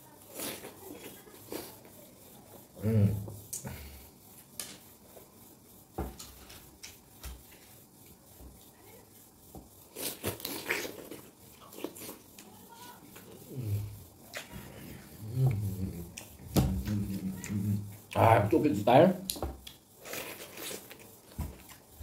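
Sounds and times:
wet chewing and slurping: 0.2 - 2.7, 9.8 - 12.5, 13.1 - 18.2, 19.3 - 22.0
short vocal noise: 2.8 - 3.8.

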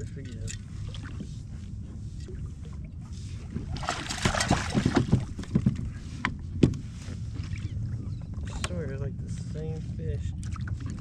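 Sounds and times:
steady low rumble: 0.0 - 11.0
fish splashing in water: 3.6 - 5.6.

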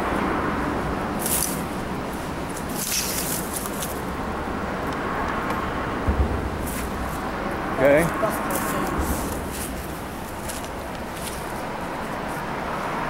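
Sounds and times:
soft knock: 6.0 - 8.2.

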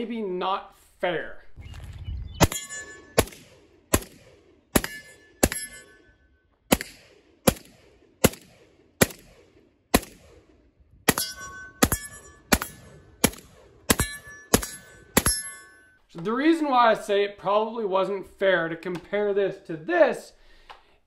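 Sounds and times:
rifle gunshots: 2.4 - 5.9, 6.7 - 15.5
short metallic ring: 2.5 - 3.2, 4.8 - 6.4, 11.1 - 12.9, 13.9 - 16.1.

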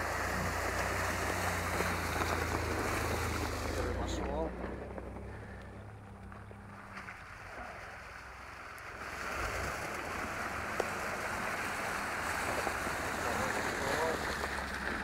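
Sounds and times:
water and slush splashing: 0.0 - 5.7, 6.3 - 15.0
car engine rumble: 0.0 - 15.0.

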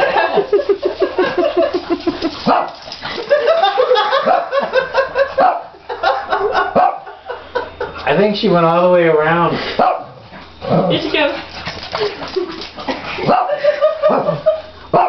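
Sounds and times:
small dog barking and yipping: 2.4 - 2.8, 13.2 - 15.0.

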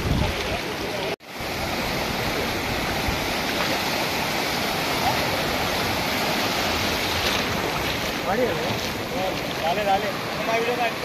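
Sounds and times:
surf waves breaking: 0.0 - 11.0.

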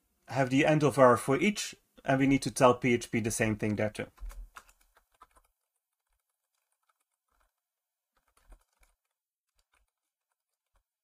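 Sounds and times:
keyboard typing: 3.6 - 11.0.

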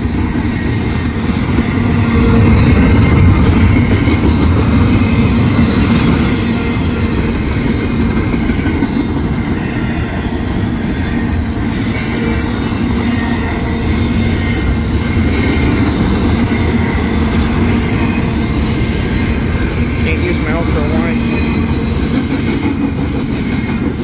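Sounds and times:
freight train wheels rumbling on rail: 0.0 - 24.0.

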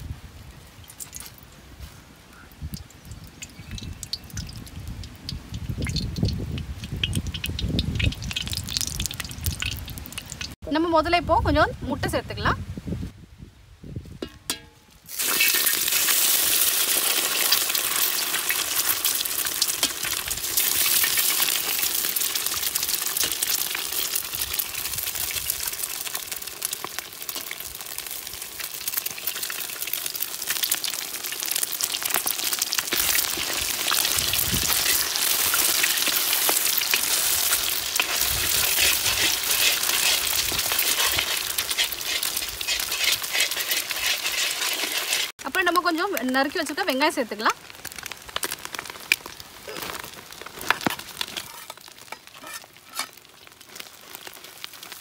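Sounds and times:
eggs sizzling in hot oil: 2.5 - 10.6, 14.5 - 55.0
metal ladle stirring: 32.9 - 45.3.

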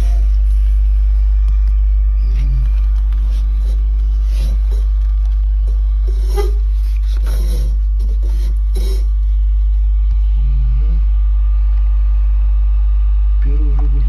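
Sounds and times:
bass-heavy music from subwoofer: 0.0 - 6.0.

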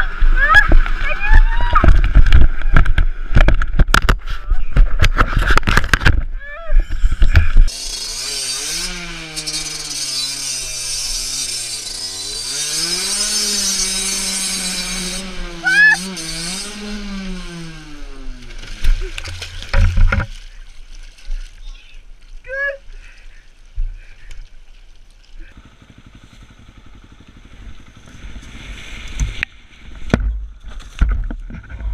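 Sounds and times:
loud irregular knocks and clatter: 4.8 - 6.3, 18.6 - 20.4, 30.0 - 31.9
dirt bike engine running: 10.2 - 20.3, 25.2 - 30.6.

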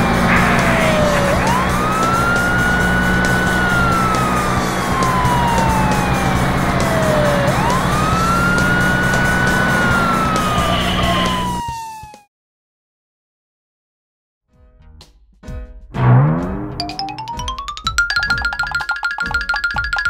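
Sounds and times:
police siren wailing: 0.0 - 12.3.

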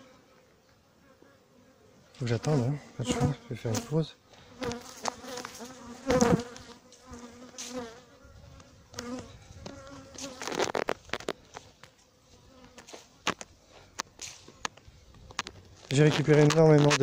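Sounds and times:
honey bees buzzing: 0.0 - 17.0.

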